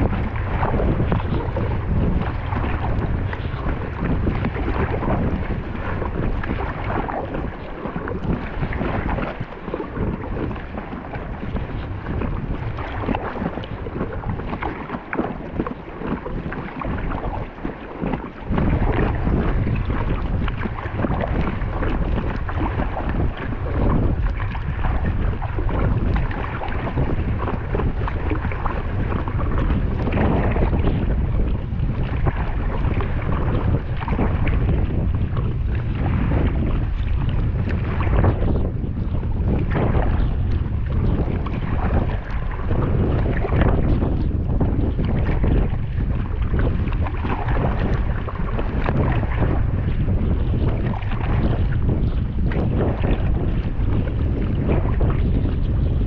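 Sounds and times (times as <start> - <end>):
water splashing against kayak: 0.0 - 56.0
wind buffeting microphone: 0.0 - 56.0.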